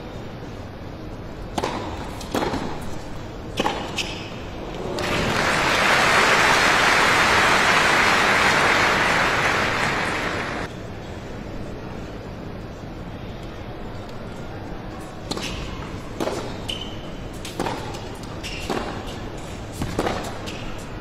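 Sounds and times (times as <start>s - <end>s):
racket hitting tennis ball: 1.5s - 4.4s, 17.4s - 20.8s
crowd applauding: 4.8s - 10.7s.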